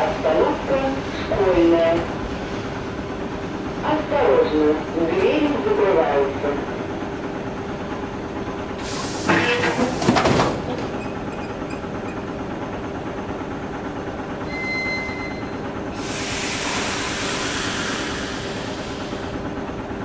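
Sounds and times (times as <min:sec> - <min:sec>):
standing train hum: 0:00.0 - 0:20.0
air hiss: 0:08.8 - 0:09.4, 0:16.0 - 0:19.4
train doors closing with thuds: 0:08.8 - 0:12.5
short high tone: 0:14.4 - 0:15.6.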